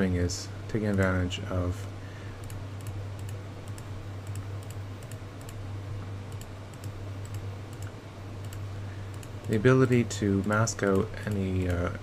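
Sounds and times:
steady low hum: 0.0s - 12.0s
computer mouse clicks: 2.4s - 5.6s, 6.3s - 11.9s.

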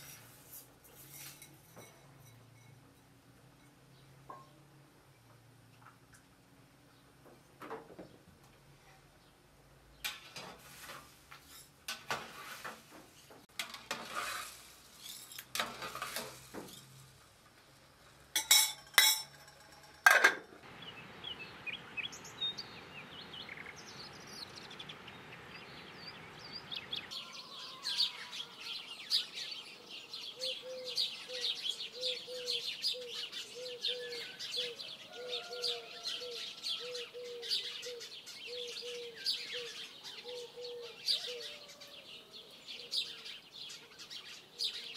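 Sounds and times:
pot and lid clinking: 18.4s - 20.5s
birds chirping: 20.6s - 44.9s.

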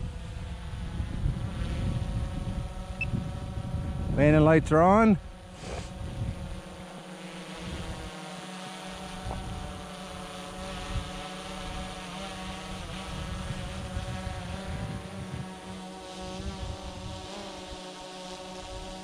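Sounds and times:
wind buffeting microphone: 0.0s - 6.7s, 13.1s - 15.6s.

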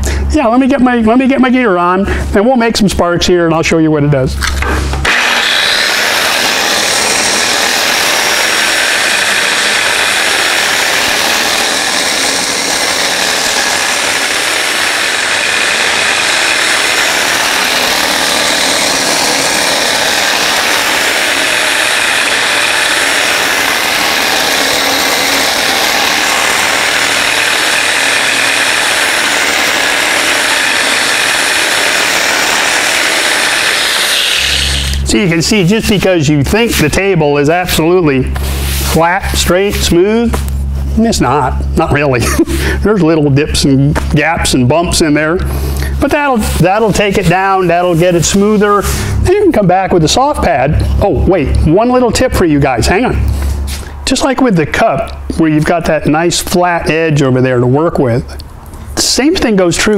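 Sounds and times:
angle grinder grinding steel: 4.6s - 54.1s.

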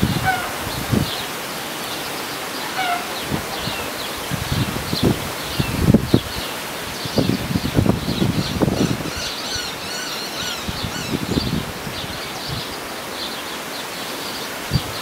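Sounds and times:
low wind buffeting: 0.0s - 13.7s, 14.4s - 15.0s
birds chirping: 0.0s - 15.0s
leaves rustling in wind: 0.0s - 15.0s
high squeaky bird calls: 2.0s - 4.2s, 8.3s - 11.5s.

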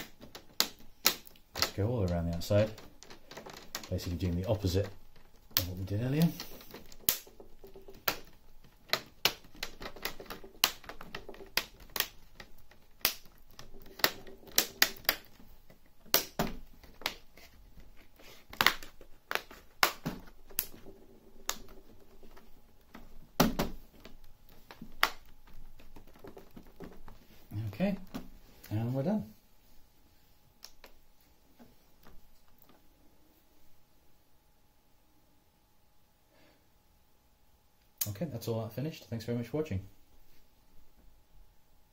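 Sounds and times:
plastic clips snapping into place: 5.2s - 27.2s.

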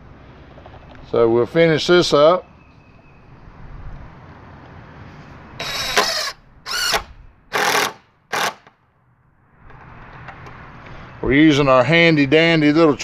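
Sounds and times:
impact driver driving screw into wood: 5.6s - 8.8s.

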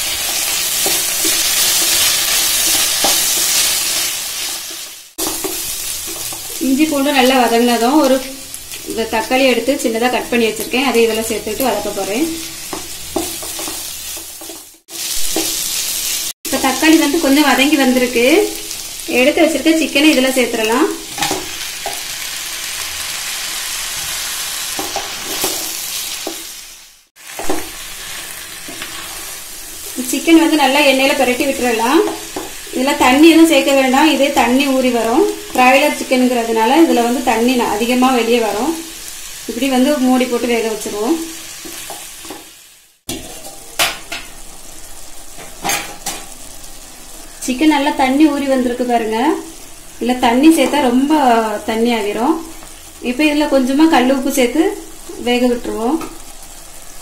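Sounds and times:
onions sizzling in oil: 0.0s - 57.0s
wooden spatula scraping: 23.8s - 26.5s.

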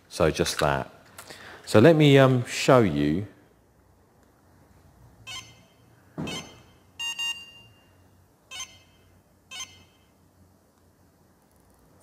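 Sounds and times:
short electronic beeps: 5.3s - 10.1s.

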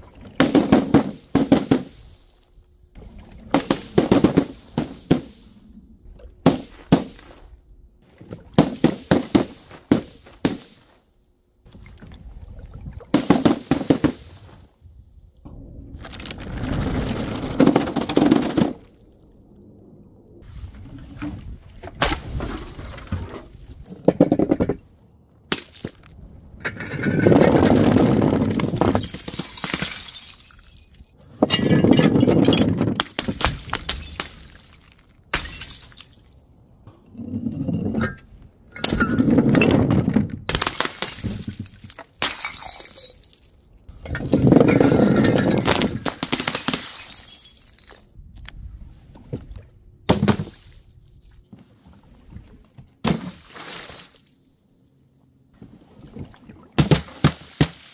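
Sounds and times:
glass bottles shattering: 25.5s - 26.0s, 28.4s - 36.4s, 37.8s - 39.9s, 40.5s - 48.1s
glass pieces tinkling: 28.8s - 31.2s, 41.0s - 43.9s, 47.0s - 48.1s.

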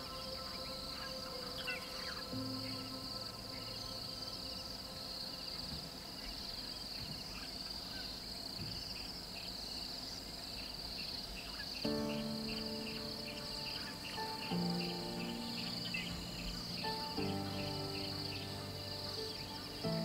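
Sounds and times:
soft background music chords: 0.0s - 7.1s, 11.8s - 20.0s
chorus of insects: 0.0s - 20.0s.

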